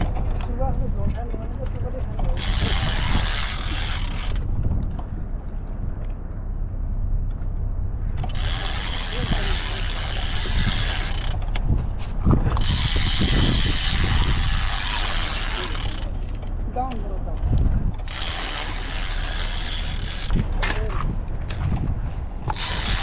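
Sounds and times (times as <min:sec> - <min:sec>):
wind rumble on microphone: 0:00.0 - 0:23.0
fishing reel ratcheting: 0:02.3 - 0:04.5, 0:08.2 - 0:11.7, 0:12.4 - 0:20.5, 0:22.4 - 0:23.0.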